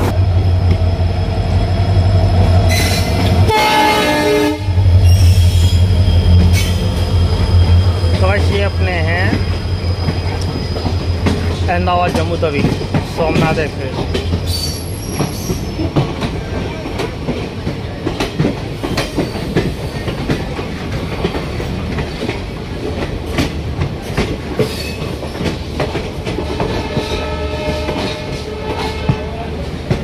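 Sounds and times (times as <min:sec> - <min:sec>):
train rumbling on track: 0:00.0 - 0:30.0
wheels clicking over rail joints: 0:08.1 - 0:30.0.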